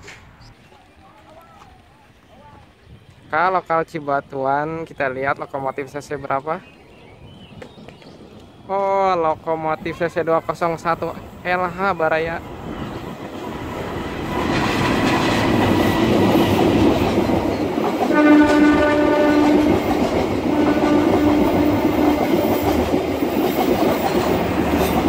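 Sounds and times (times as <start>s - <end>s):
train coaches rumbling on rails: 5.6s - 25.0s
locomotive horn blasts: 18.1s - 19.9s, 20.5s - 22.8s.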